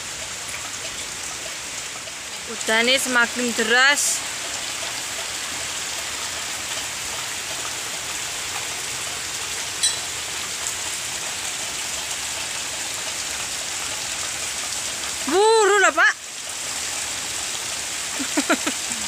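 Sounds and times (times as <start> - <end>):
heavy rain falling: 0.0 - 19.0.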